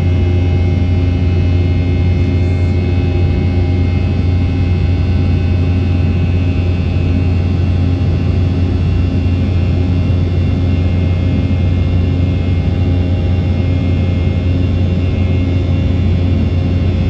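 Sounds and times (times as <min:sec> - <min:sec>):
airliner cabin drone: 0:00.0 - 0:17.0.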